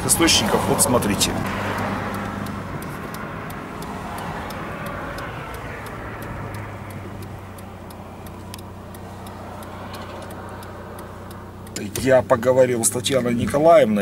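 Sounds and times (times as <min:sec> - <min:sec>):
car engine hum: 0:00.0 - 0:14.0
road noise: 0:00.0 - 0:14.0
turn signal ticking: 0:00.0 - 0:14.0.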